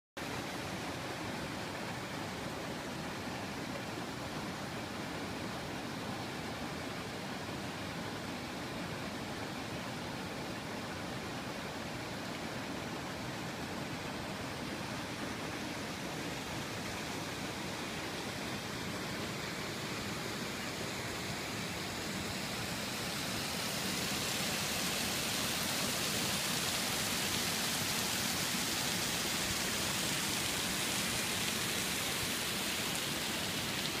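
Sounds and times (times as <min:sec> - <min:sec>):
waterfall rushing: 0:11.3 - 0:34.0.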